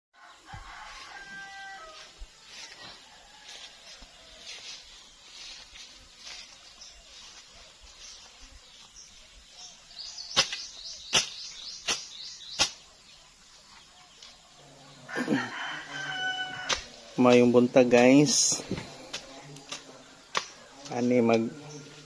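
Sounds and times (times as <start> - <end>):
grass rustling: 0.4 - 22.0
machete slashing grass: 10.3 - 12.9.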